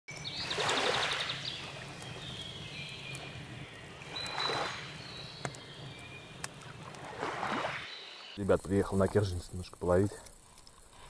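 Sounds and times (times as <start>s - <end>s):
high ticks: 1.6s - 7.1s, 8.4s - 11.0s
water-like whooshing: 6.7s - 8.4s.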